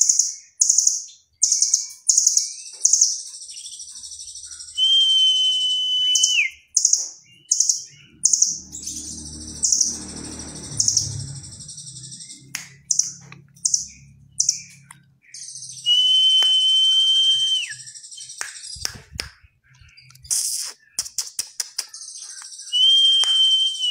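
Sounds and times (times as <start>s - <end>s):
bird whistle dropping in pitch: 4.8s - 6.6s, 22.7s - 23.9s
bird trilled chatter: 6.6s - 15.9s.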